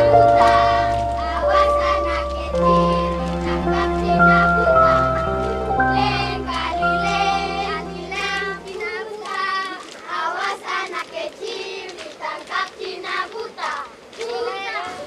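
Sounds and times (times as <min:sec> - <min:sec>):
held instrumental tones: 0:00.0 - 0:08.8
children singing together: 0:00.0 - 0:15.0.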